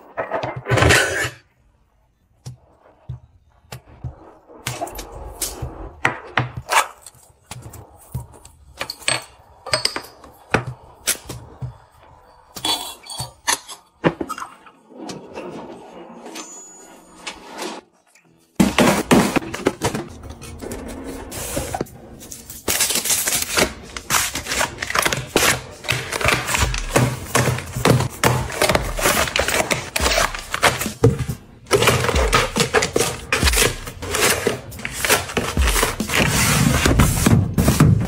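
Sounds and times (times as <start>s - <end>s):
plastic and foil packaging crinkling: 22.4s - 31.0s
boxes and bins set down: 24.2s - 38.0s.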